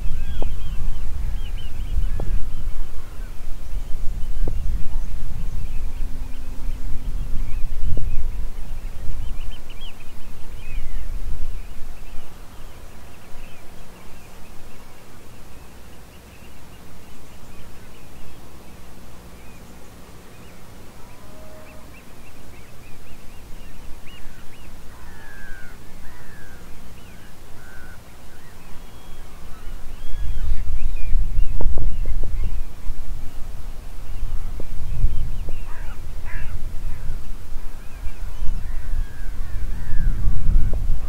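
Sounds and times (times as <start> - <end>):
birds chirping: 0.0 - 41.0
wind rumbling on microphone: 0.0 - 41.0.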